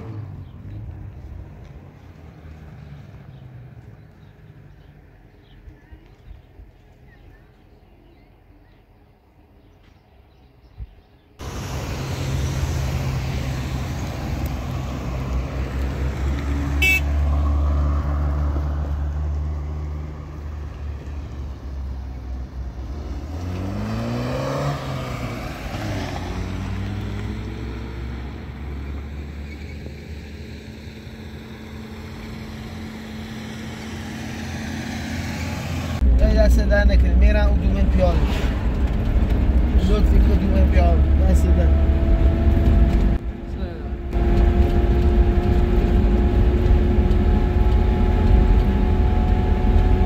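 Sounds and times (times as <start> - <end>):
car engine running: 11.4 - 17.4, 30.6 - 50.0
car passing by: 11.4 - 30.3, 30.9 - 36.0, 37.6 - 43.2.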